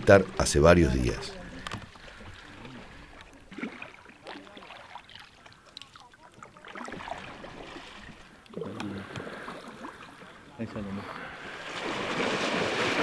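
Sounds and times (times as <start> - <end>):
paddles dipping through water: 0.0 - 13.0
faint splashes and knocks: 1.5 - 10.3.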